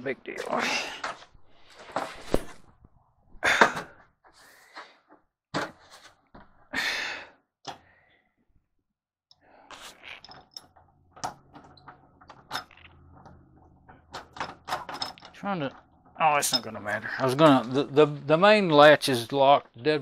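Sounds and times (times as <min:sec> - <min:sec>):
hard objects knocking and thumping: 0:10.1 - 0:17.0.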